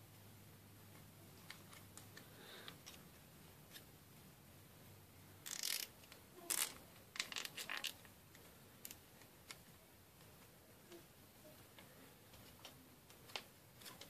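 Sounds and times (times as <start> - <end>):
zip tie ratcheting: 5.4 - 5.9, 6.5 - 8.0.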